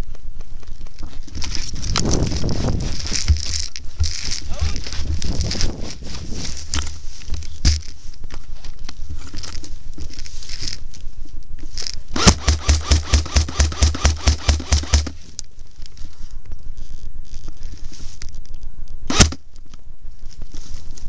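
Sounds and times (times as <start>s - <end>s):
dry grass and brush rustling: 0.0s - 21.0s
rapid sharp knocks: 12.2s - 15.1s.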